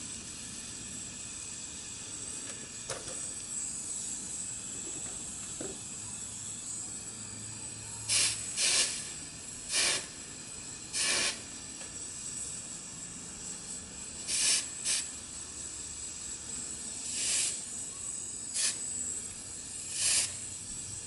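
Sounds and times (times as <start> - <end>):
gas torch hissing: 0.0 - 21.0.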